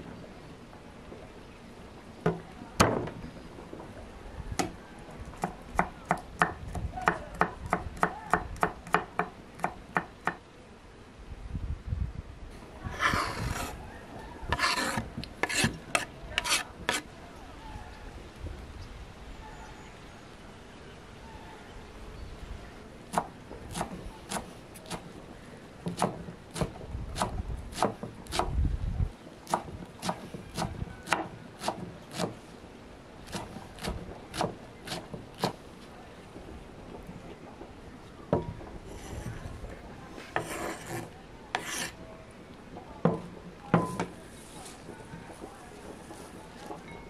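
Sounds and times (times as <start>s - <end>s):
herbs scraped off board: 12.9s - 13.8s, 14.5s - 17.1s, 40.2s - 42.0s
knife chopping on wooden board: 14.5s - 17.0s, 29.5s - 32.4s, 33.3s - 35.6s.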